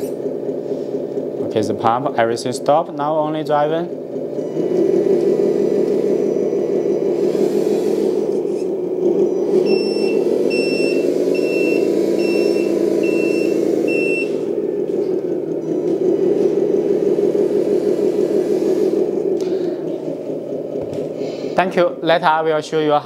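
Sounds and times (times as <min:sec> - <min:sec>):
toy truck motor humming: 0:03.6 - 0:21.6
reversing alarm beeps: 0:04.4 - 0:07.2, 0:08.1 - 0:14.5.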